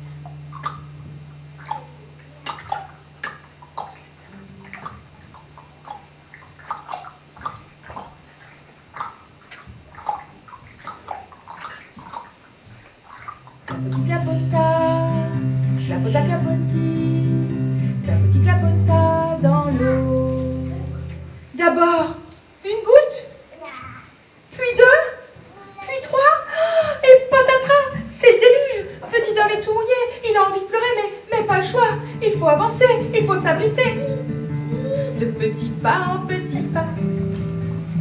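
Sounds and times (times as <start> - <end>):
acoustic guitar chords: 0.0 - 5.2, 13.7 - 21.5, 31.5 - 38.0.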